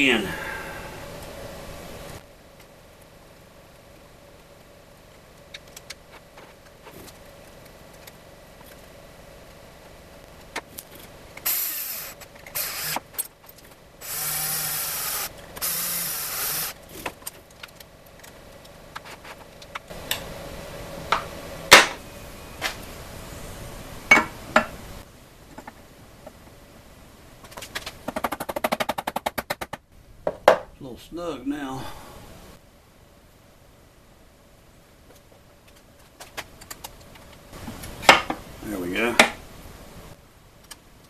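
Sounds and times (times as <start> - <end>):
cordless drill running: 11.4 - 13.0, 14.0 - 16.8.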